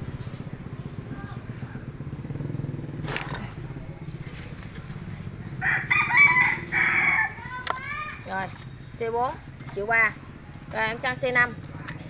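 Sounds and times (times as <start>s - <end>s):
rooster crowing: 5.6s - 7.5s.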